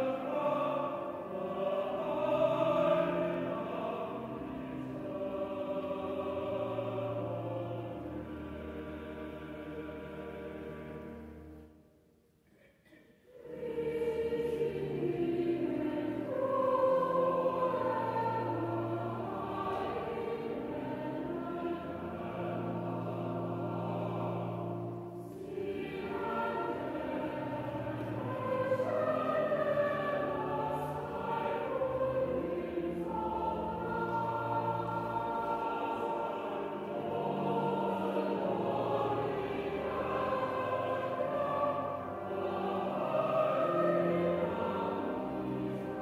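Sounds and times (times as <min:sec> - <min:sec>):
choir singing a hymn: 0:00.0 - 0:11.7, 0:13.3 - 0:46.0
organ chords: 0:13.4 - 0:46.0.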